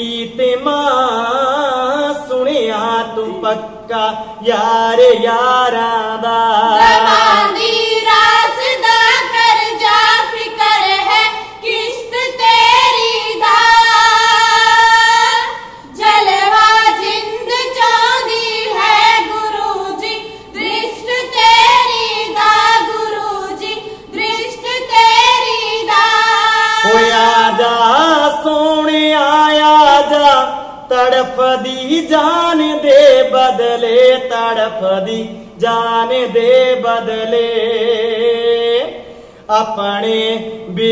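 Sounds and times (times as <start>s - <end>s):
man singing: 0.0s - 7.1s, 26.8s - 40.9s
women singing together: 6.5s - 28.4s.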